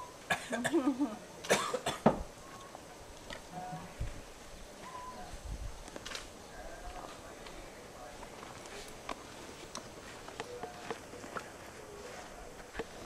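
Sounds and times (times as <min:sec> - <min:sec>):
person coughing: 0:01.5 - 0:02.0.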